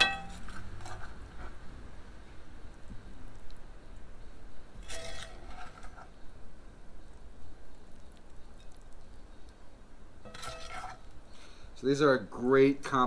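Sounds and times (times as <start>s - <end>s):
metal spoon scraping cookware: 4.8s - 6.1s, 10.2s - 11.1s.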